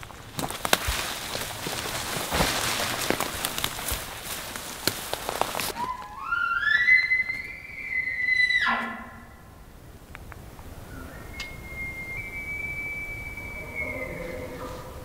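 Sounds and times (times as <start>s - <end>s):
rustling and crackling: 0.0s - 7.8s
elk bugle: 5.6s - 9.7s, 11.0s - 15.0s.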